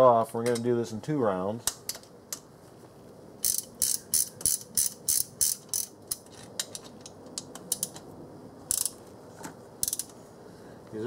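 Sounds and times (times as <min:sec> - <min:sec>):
hand ratchet clicking: 0:03.4 - 0:08.0, 0:08.7 - 0:09.0, 0:09.8 - 0:10.2.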